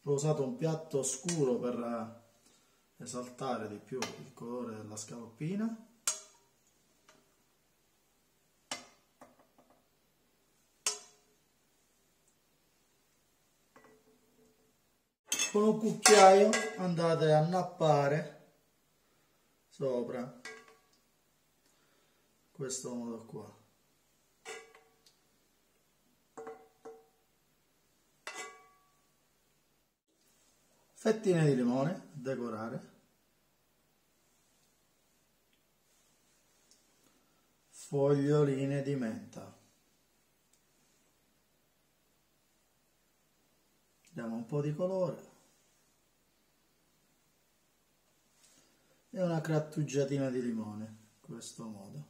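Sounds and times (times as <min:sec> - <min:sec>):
metal spoon clinking in pan: 0:06.1 - 0:06.4, 0:10.9 - 0:11.3, 0:15.3 - 0:16.8, 0:24.5 - 0:25.0, 0:28.3 - 0:28.9
tongs clinking on frying pan: 0:06.1 - 0:06.5.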